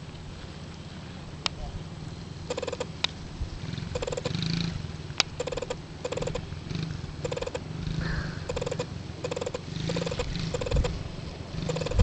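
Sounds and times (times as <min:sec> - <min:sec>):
dirt bike engine putter: 0:04.0 - 0:04.4, 0:05.2 - 0:06.5, 0:08.5 - 0:11.0, 0:11.6 - 0:12.0.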